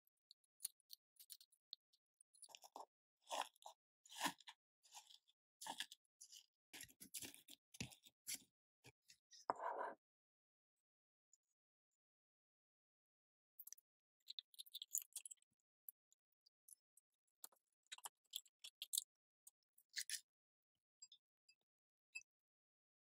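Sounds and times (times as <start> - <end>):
biscuit crumbs crunching under spoon: 2.3 - 8.5, 13.6 - 15.4, 17.4 - 19.1.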